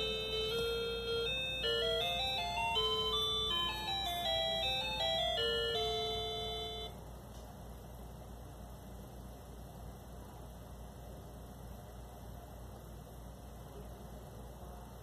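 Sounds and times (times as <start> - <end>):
electronic beeper melody: 0.0 - 6.9
low steady hum: 0.0 - 15.0.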